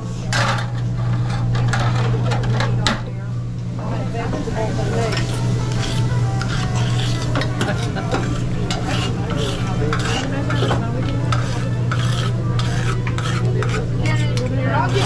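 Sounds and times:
steady low hum: 0:00.0 - 0:15.0
metal spatula scraping a griddle: 0:00.3 - 0:02.6, 0:04.8 - 0:14.2
food sizzling: 0:04.6 - 0:10.2.

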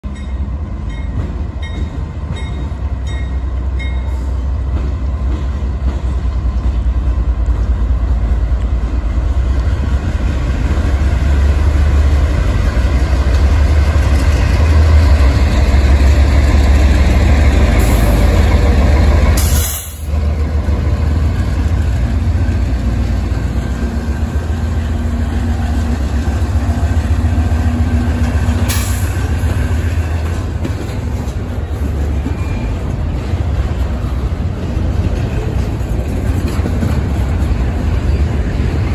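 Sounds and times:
diesel locomotive engine rumble: 0:00.0 - 0:38.9.

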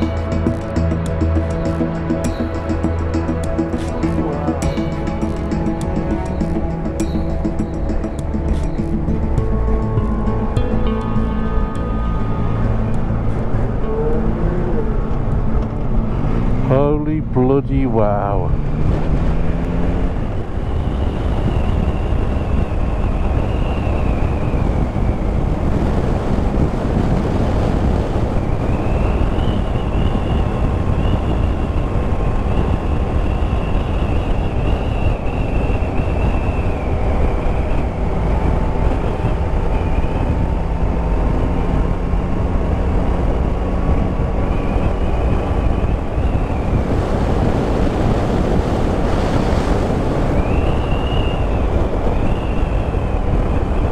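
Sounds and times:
motorcycle engine running: 0:00.0 - 0:17.0
high wavering whine: 0:00.0 - 0:18.6, 0:19.6 - 0:53.9
wind rush over microphone: 0:00.0 - 0:53.9.

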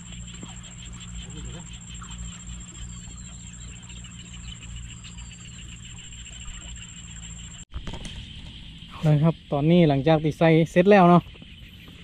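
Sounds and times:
thin high whine: 0:00.0 - 0:10.2
insect chorus trilling: 0:00.0 - 0:12.0
low steady hum: 0:00.0 - 0:12.0.

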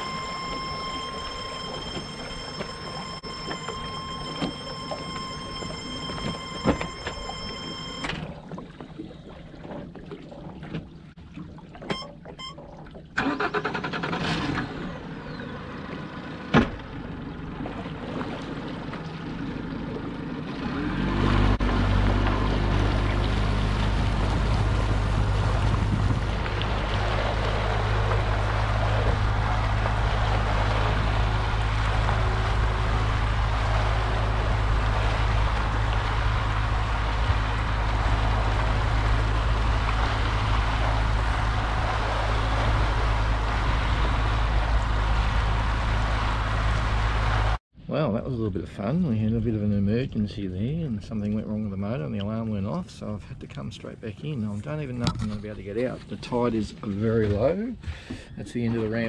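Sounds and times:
high warning beep: 0:00.0 - 0:08.1, 0:11.9 - 0:12.6
outboard motor running: 0:00.0 - 0:47.6.

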